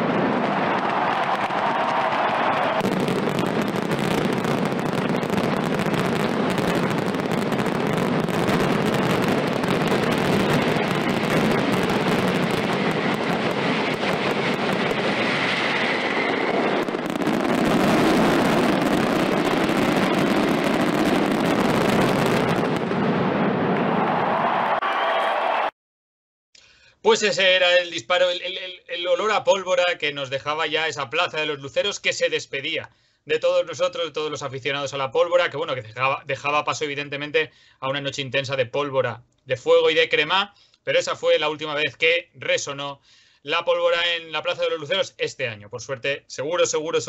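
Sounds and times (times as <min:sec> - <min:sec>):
firecracker bangs: 0:00.0 - 0:24.1.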